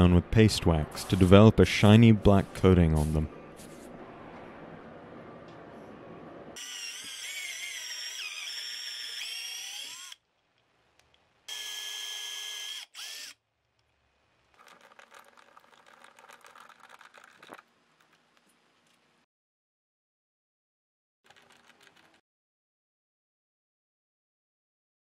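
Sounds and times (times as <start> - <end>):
cordless drill whining: 6.6 - 10.2, 11.5 - 13.4.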